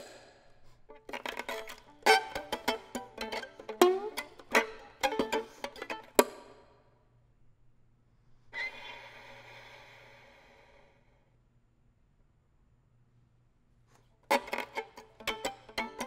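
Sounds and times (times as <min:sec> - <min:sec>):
airy violin bow stroke: 0:00.8 - 0:06.4, 0:14.3 - 0:16.0
plucked violin notes: 0:00.8 - 0:06.7, 0:14.2 - 0:16.0.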